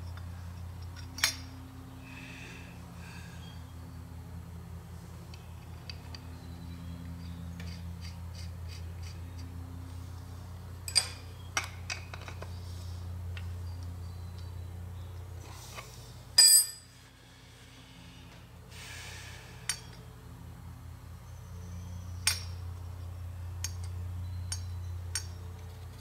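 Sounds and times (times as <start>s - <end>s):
steady low hum: 0.0s - 26.0s
metallic clicks of small parts: 22.2s - 22.6s, 23.6s - 26.0s.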